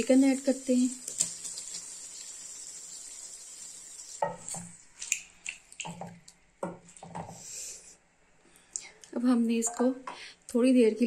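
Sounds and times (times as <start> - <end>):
chicken sizzling in oil: 0.0 - 4.8.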